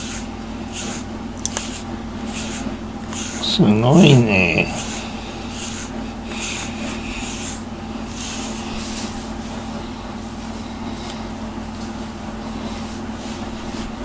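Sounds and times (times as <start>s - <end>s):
brush scratching through cat fur: 0.0s - 14.0s
steady low hum: 0.0s - 14.0s.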